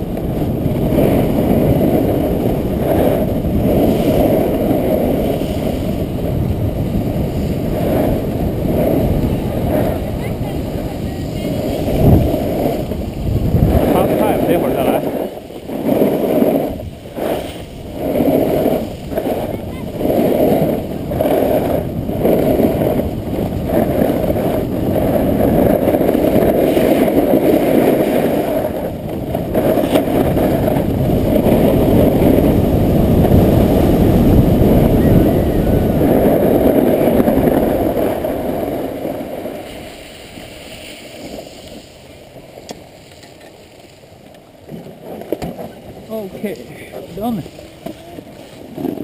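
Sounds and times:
muffled wind rumble: 0.0s - 49.0s
snowboard running over snow: 0.0s - 49.0s.

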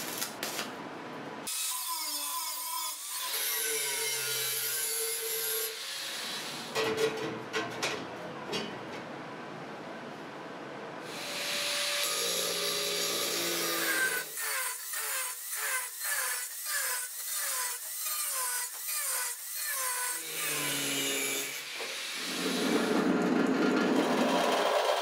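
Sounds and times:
angle grinder cutting steel pipe: 1.5s - 6.4s, 11.1s - 23.2s
loud machine noise: 21.8s - 25.0s.

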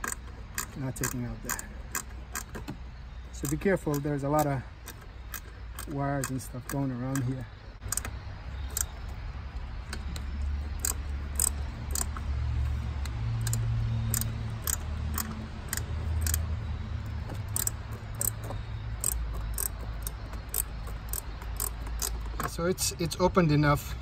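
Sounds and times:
insects chirping: 0.0s - 24.0s.

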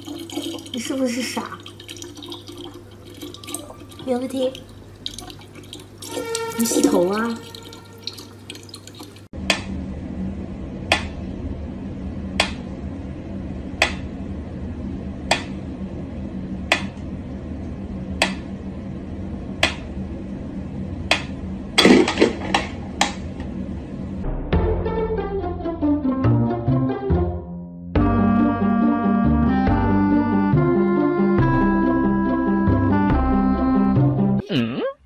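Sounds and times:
steady low hum: 0.0s - 24.6s.

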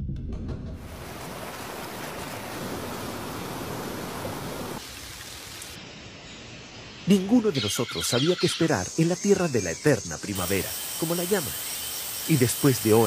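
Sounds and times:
water pattering onto pool: 1.0s - 5.8s.

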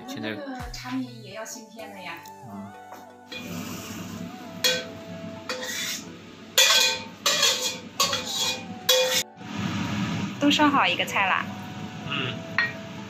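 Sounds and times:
metal spatula scraping a wok: 3.3s - 4.9s, 5.5s - 9.3s.

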